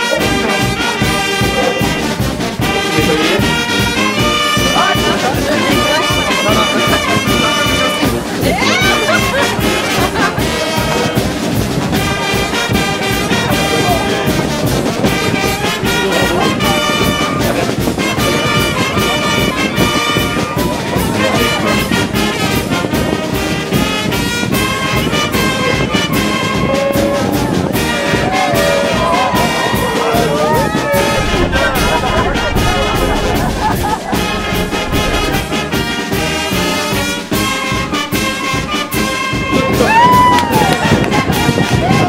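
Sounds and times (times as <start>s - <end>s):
brass section playing: 0.0s - 39.8s
busy percussion beat: 29.7s - 37.9s.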